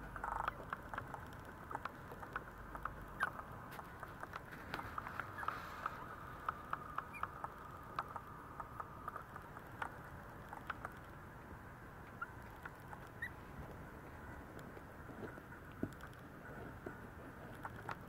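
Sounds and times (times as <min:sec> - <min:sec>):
puppy paws scratching: 0:00.3 - 0:11.2
puppies squeaking: 0:03.1 - 0:03.4, 0:04.6 - 0:06.2, 0:07.0 - 0:07.5, 0:12.2 - 0:13.4.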